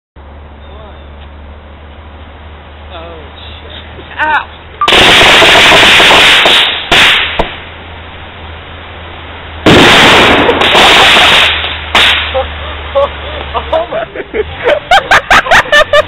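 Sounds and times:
fireworks crackling and banging: 0:04.9 - 0:07.7, 0:09.6 - 0:12.6.

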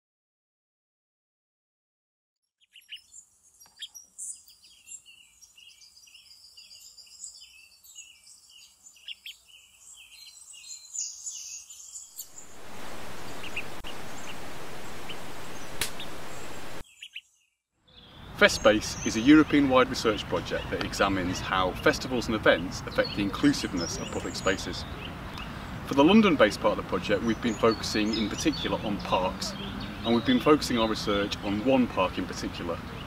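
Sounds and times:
songbirds chirping: 0:02.5 - 0:33.0
television static hiss: 0:12.4 - 0:16.8.

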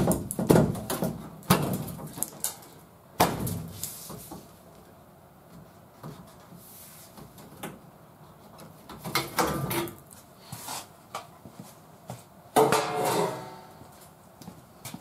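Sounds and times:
sheet metal knocks and clatters: 0:12.6 - 0:13.7.

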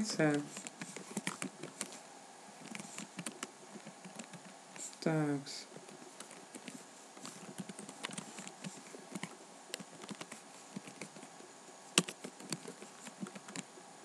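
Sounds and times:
typing on a keyboard: 0:00.4 - 0:02.0, 0:02.6 - 0:04.5, 0:06.2 - 0:11.3, 0:12.0 - 0:13.7.

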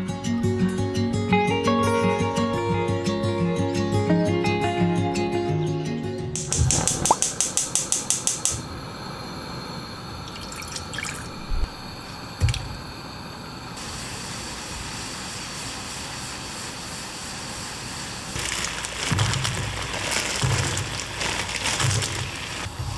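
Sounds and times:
gas stove igniter clicks: 0:06.3 - 0:08.7
water simmering in a pan: 0:06.8 - 0:13.2.

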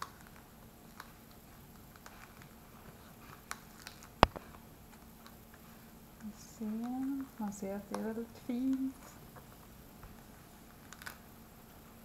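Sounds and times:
gourd skin peeling crackles: 0:03.3 - 0:04.5, 0:10.7 - 0:11.3
sharp click: 0:04.2 - 0:04.4.

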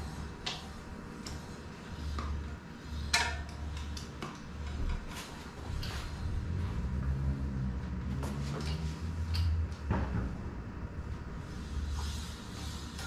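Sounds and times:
low hum: 0:04.6 - 0:13.0.

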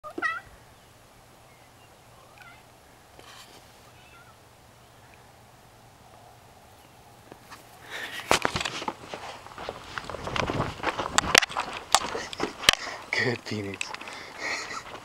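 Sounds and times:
brief rustle: 0:03.2 - 0:03.8, 0:07.4 - 0:12.9
cat chirping meows: 0:03.9 - 0:04.4.

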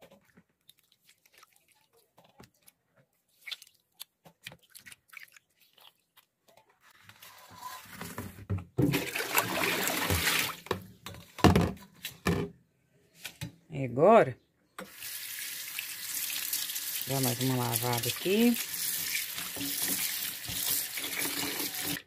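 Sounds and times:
peels squelching in water: 0:00.0 - 0:06.9, 0:15.9 - 0:22.0
water pouring into sink: 0:08.8 - 0:10.8, 0:14.9 - 0:22.0.

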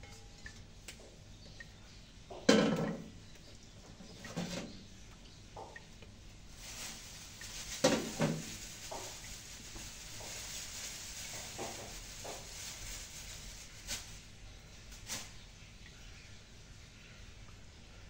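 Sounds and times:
faint steady hiss: 0:00.0 - 0:18.0
kitchen utensils clattering: 0:02.5 - 0:03.1, 0:07.7 - 0:09.3.

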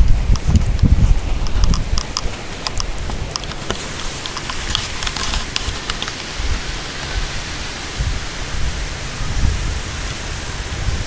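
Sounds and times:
wind buffeting microphone: 0:00.0 - 0:11.0
faint clicks: 0:00.3 - 0:06.5.

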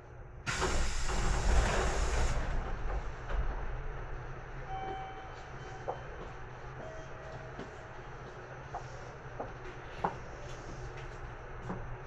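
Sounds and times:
compressed air venting from train: 0:00.5 - 0:02.6.

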